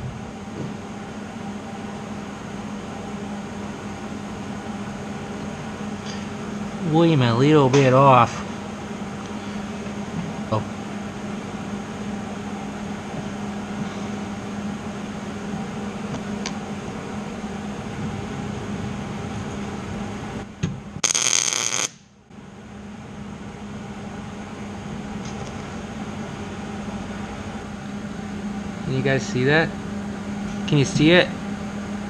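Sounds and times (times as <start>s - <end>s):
shop equipment hum: 0.0s - 32.0s
welding arc crackling: 21.0s - 22.1s.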